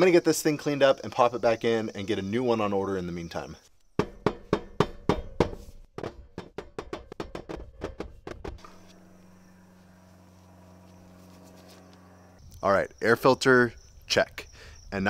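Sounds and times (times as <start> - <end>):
air filter knocked against steel: 4.0 - 8.7
faint steady hum: 8.6 - 13.2.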